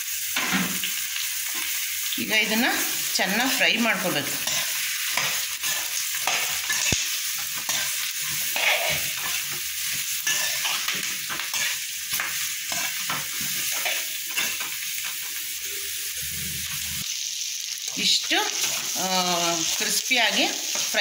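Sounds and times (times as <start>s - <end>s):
onions sizzling in oil: 0.0s - 21.0s
metal spatula scraping pan: 4.4s - 14.8s.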